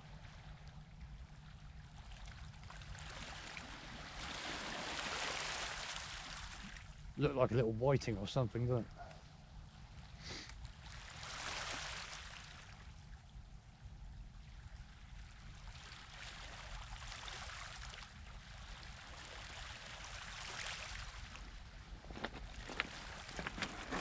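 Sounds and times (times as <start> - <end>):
small waves washing on shore: 2.0 - 6.9, 10.0 - 12.9, 14.4 - 24.0.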